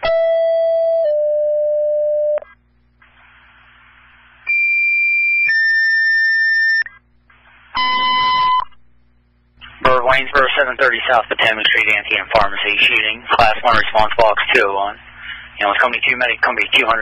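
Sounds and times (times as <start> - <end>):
radio hiss: 3.0 - 4.5, 7.3 - 8.7, 9.5 - 17.0
two-tone paging alert: 7.8 - 8.7
short beep: 7.8 - 8.8.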